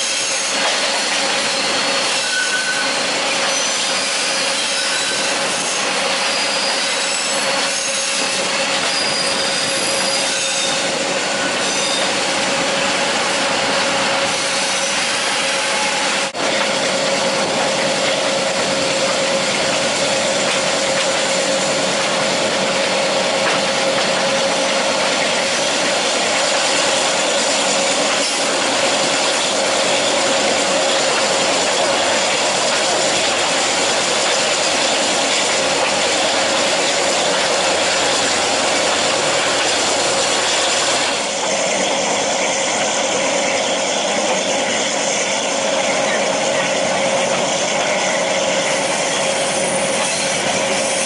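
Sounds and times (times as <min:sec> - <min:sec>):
train wheels on track: 0:00.0 - 0:51.0.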